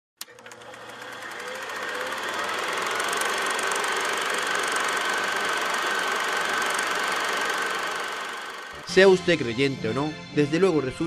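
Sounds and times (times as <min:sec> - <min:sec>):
mechanical whirring rattle: 0:00.2 - 0:08.8.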